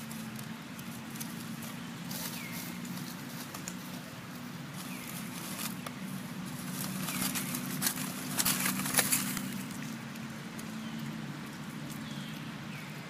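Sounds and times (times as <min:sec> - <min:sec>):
dry leaves crackling and rustling: 0:00.0 - 0:13.0
steady low hum: 0:00.0 - 0:13.0.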